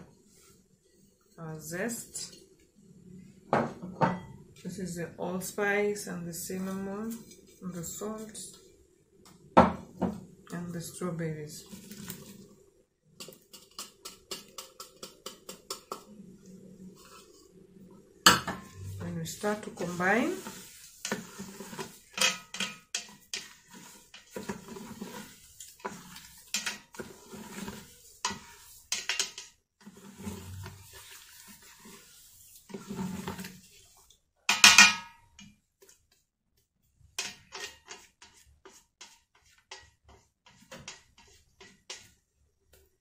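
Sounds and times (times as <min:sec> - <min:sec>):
spoon clinking in metal pot: 0:22.1 - 0:23.2.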